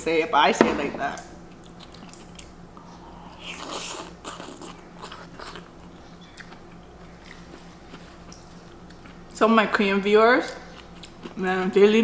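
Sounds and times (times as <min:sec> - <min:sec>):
wet chewing: 0:03.6 - 0:09.4.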